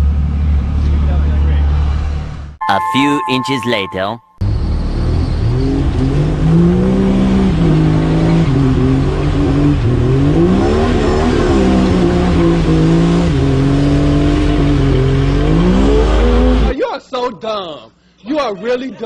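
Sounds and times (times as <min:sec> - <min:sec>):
engine revving: 0:04.5 - 0:16.7.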